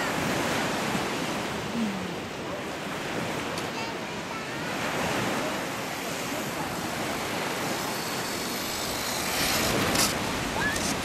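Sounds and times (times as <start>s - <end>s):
surf: 0.0s - 11.0s
wind: 0.0s - 11.0s
rc truck driving over sand: 5.6s - 11.0s.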